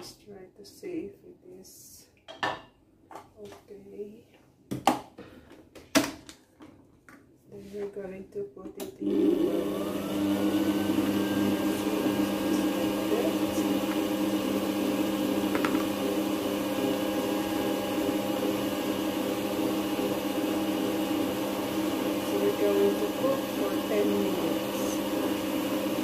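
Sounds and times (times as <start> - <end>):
food processor motor humming: 9.0 - 26.0.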